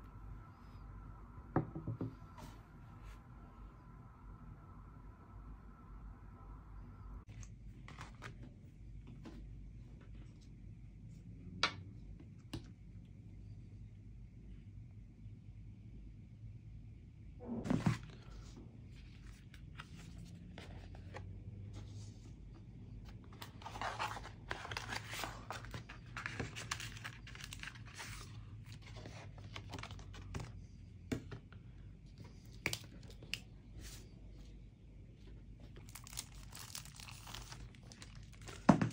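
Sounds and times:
packaging tearing and crinkling: 35.8 - 38.7.

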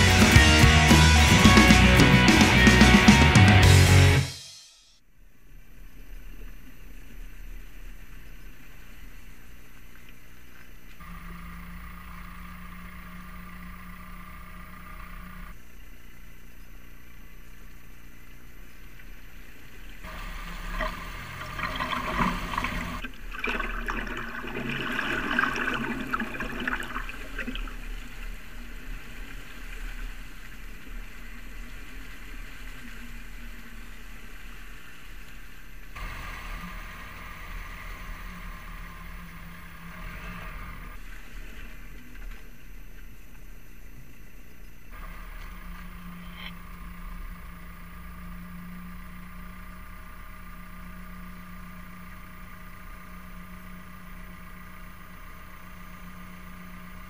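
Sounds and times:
car engine droning: 10.9 - 15.8, 20.0 - 23.2, 25.6 - 44.1, 44.9 - 57.0
muddy water splashing: 20.1 - 27.9.

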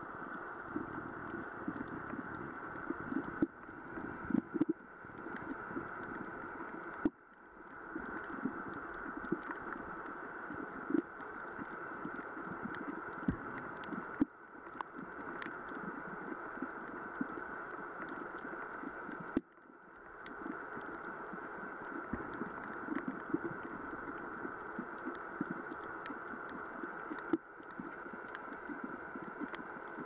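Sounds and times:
muffled underwater hiss: 0.0 - 30.0
underwater clicks and crackles: 0.0 - 30.0.

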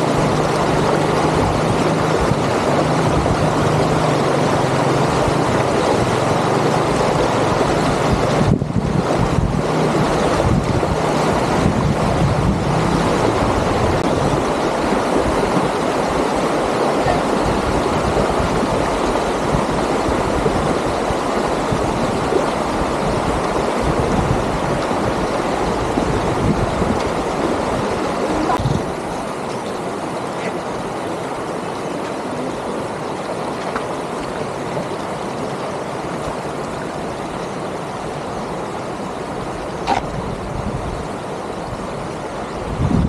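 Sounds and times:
wind on microphone: 0.0 - 31.0, 34.2 - 43.0
water rushing over rocks: 0.0 - 43.0.

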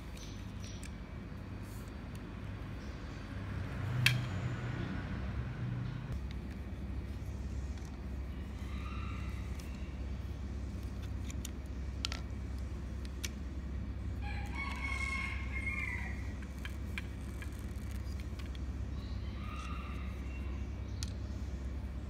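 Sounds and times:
rooster crowing: 14.2 - 16.4, 19.2 - 20.5.

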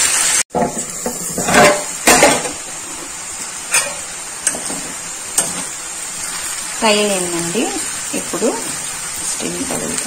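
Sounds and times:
potatoes sizzling: 0.0 - 10.0
utensil clattering against a pan: 0.6 - 2.6.

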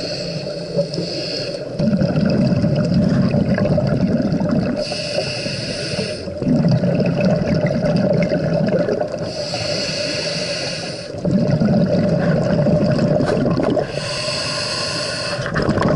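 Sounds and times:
regulator hissing inhale: 0.0 - 1.8, 4.8 - 6.4, 9.2 - 11.2, 13.8 - 15.6
exhaled bubbles gushing: 1.8 - 5.0, 6.3 - 9.4, 11.2 - 14.2, 15.4 - 15.9.

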